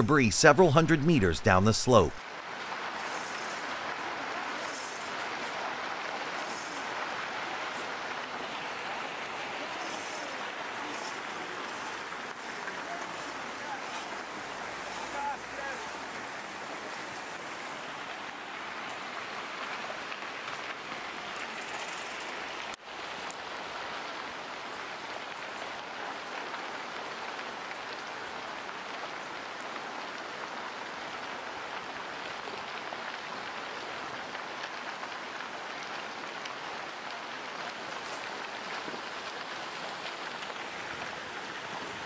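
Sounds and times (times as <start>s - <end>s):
rock debris pouring down a slope: 2.4s - 16.1s, 23.8s - 42.0s.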